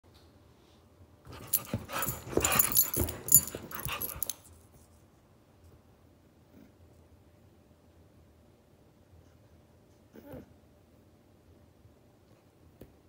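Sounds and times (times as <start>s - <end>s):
dogs play-growling and scuffling: 1.3s - 4.5s
collar tag jingling: 1.3s - 4.6s.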